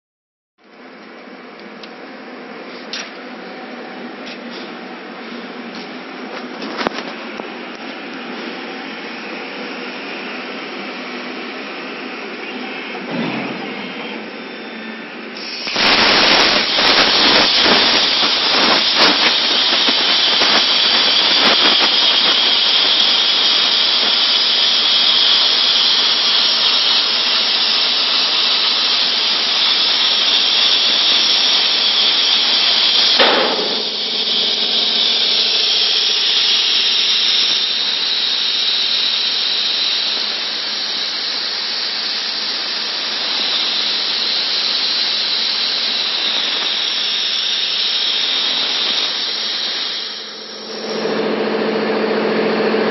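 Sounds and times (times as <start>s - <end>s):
plasma torch hissing: 8.3s - 51.3s
crackling: 15.7s - 25.8s.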